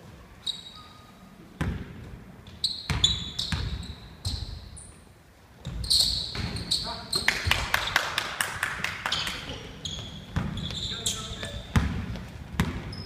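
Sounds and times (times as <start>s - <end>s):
sneaker squeaks: 0.4s - 1.3s, 2.4s - 8.0s, 9.0s - 13.0s
basketball bouncing on hardwood floor: 1.6s - 2.0s, 10.0s - 10.8s, 11.4s - 13.0s.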